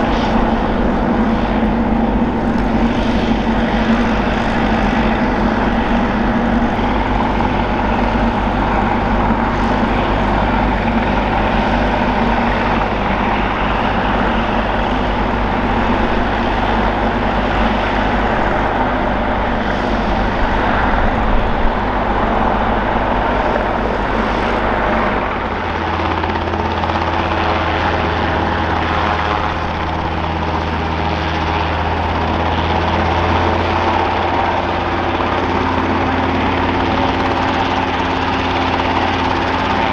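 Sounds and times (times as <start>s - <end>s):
helicopter engine and rotors running: 0.0s - 39.9s.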